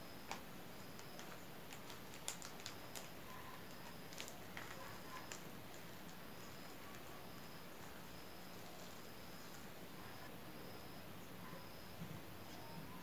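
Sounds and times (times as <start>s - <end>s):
soft clicks and crinkles: 0.2s - 10.3s.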